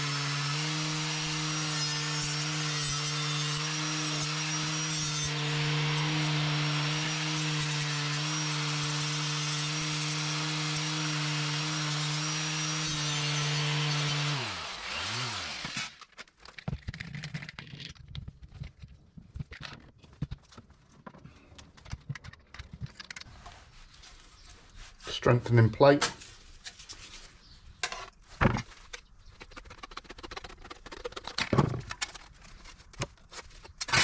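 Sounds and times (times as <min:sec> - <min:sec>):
electric power tool grinding steel: 0:00.0 - 0:16.1
knocks and clatter of handling: 0:16.1 - 0:23.6, 0:27.8 - 0:33.9.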